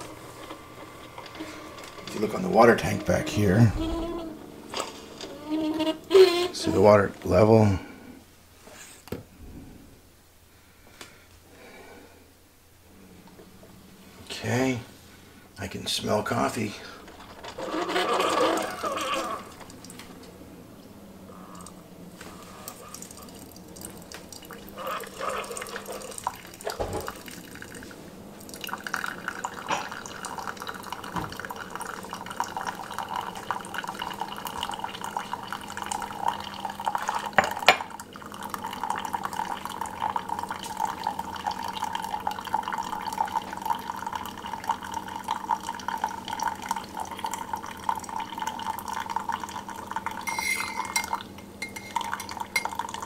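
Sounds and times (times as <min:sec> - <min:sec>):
coffee trickling into a mug: 0:00.0 - 0:07.4, 0:16.0 - 0:20.2, 0:21.3 - 0:53.0
low machine hum: 0:00.0 - 0:08.4.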